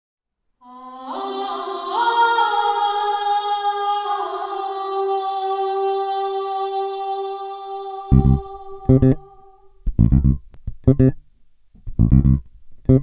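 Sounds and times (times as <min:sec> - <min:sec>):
intro music chord: 0:08.1 - 0:09.3.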